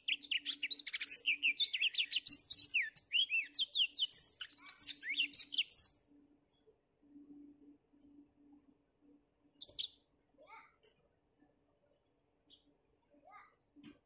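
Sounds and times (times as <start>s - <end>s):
canary singing: 0.0s - 6.0s, 9.6s - 10.0s.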